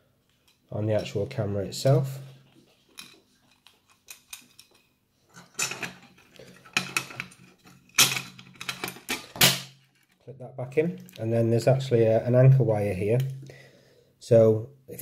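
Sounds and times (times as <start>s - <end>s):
metal plate clicks and clatter: 3.0s - 10.2s.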